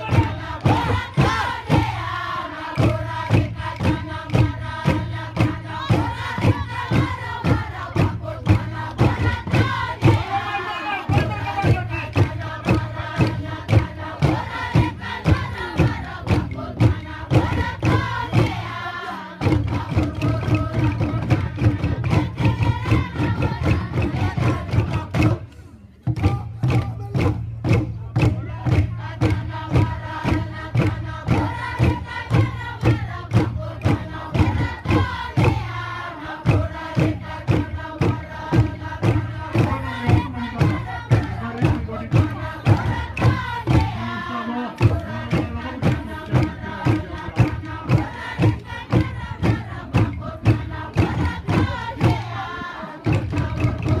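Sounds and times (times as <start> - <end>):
group singing in unison: 0.0 - 54.0
steady percussive beat: 0.0 - 54.0.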